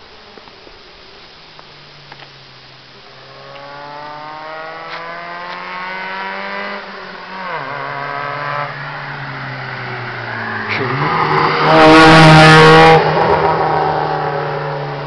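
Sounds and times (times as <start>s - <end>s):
unmuffled car engine accelerating: 3.2s - 15.0s.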